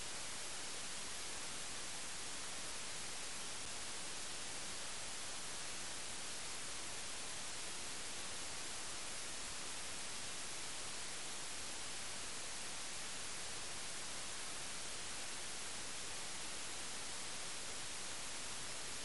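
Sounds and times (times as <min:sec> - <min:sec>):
steady tape hiss: 0:00.0 - 0:19.0.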